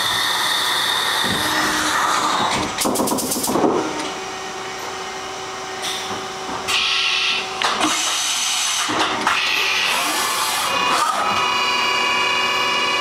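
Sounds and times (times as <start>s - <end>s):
machine whine: 0.0s - 13.0s.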